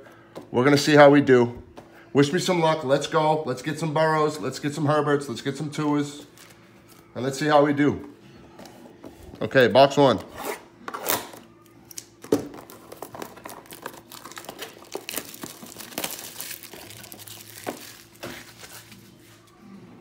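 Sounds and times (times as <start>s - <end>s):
scissors snipping shrink wrap: 10.9s - 19.0s
plastic wrap tearing and crinkling: 11.9s - 19.2s.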